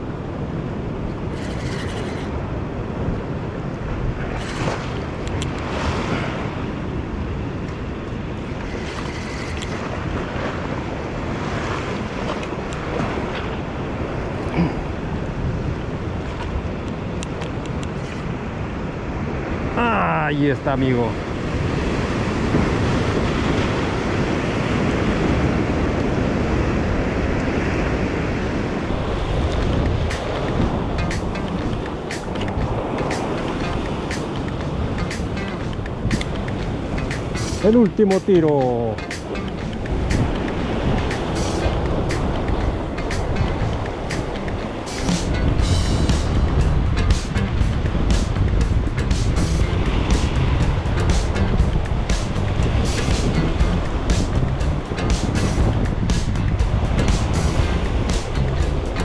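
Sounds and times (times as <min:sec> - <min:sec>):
waves breaking on rocky shore: 0:00.0 - 0:59.0
wind buffeting microphone: 0:21.0 - 0:59.0.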